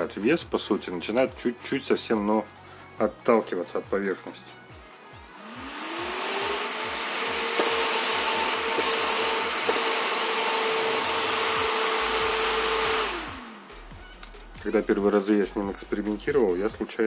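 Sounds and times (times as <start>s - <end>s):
computer fan whining: 4.8s - 14.3s.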